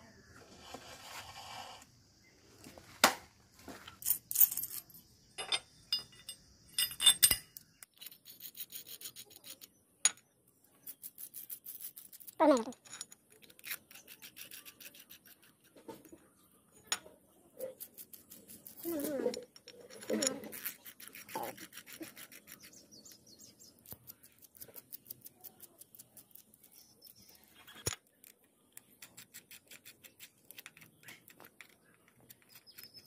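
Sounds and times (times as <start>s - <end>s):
metal scrape: 0.4s - 1.8s
metal bolts clicking and clinking: 3.9s - 8.2s, 19.2s - 21.2s.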